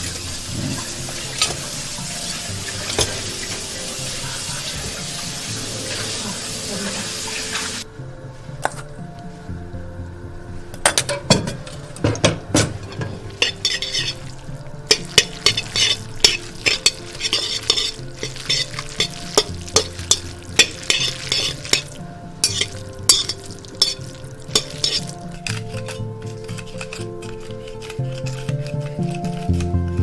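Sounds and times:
metal utensil clinking in bowl: 0:10.8 - 0:29.7.

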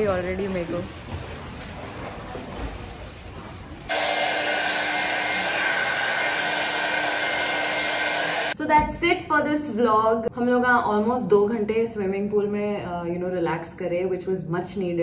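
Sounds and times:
hair dryer running: 0:03.9 - 0:08.6.

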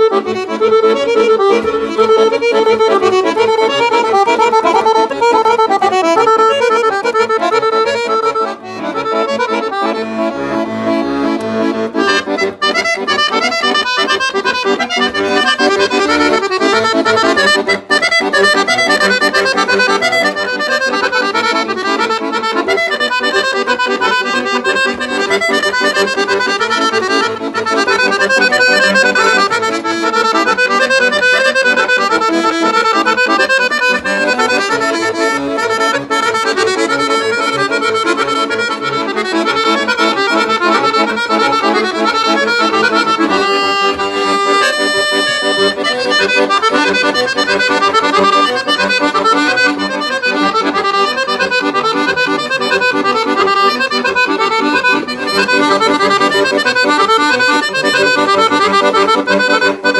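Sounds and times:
accordion melody: 0:00.0 - 0:59.9.

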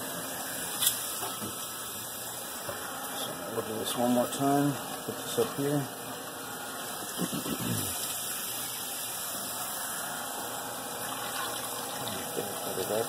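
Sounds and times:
water rushing through machine: 0:07.0 - 0:13.0.

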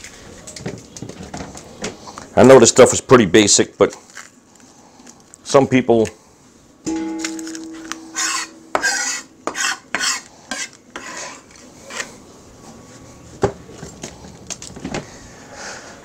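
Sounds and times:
metallic ring: 0:06.9 - 0:10.3
kitchen knife scraping: 0:07.2 - 0:12.2.

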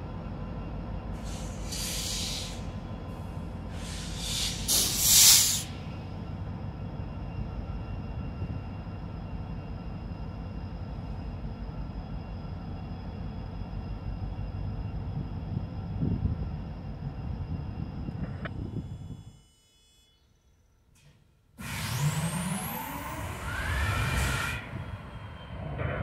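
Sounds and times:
diesel locomotive idling: 0:00.0 - 0:19.2
air brakes hissing: 0:01.2 - 0:06.0.

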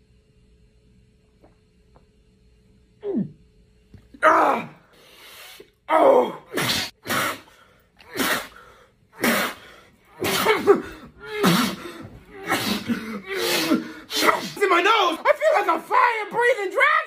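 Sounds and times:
man coughing and gasping: 0:09.2 - 0:14.8.

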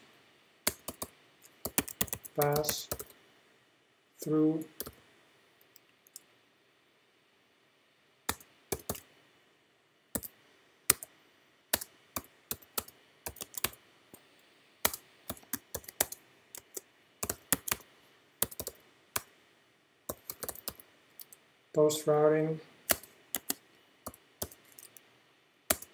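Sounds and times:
keyboard typing clicks: 0:00.7 - 0:03.2, 0:08.3 - 0:09.1, 0:10.2 - 0:11.1, 0:11.7 - 0:13.8, 0:14.8 - 0:17.8, 0:18.4 - 0:19.3, 0:20.1 - 0:21.4, 0:22.9 - 0:25.0, 0:25.7 - 0:25.9.

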